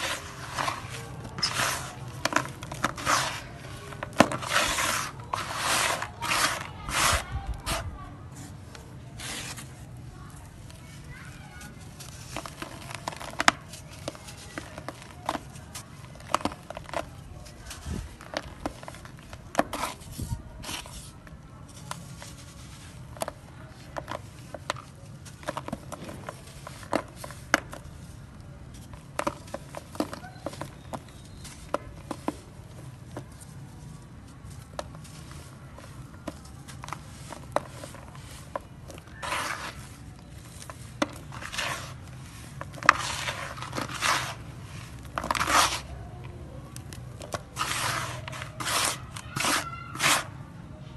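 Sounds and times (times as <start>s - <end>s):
sand sifting and scraping: 0.0s - 16.0s, 34.4s - 46.0s, 47.5s - 50.3s
cement lumps crunching by hand: 0.0s - 50.4s.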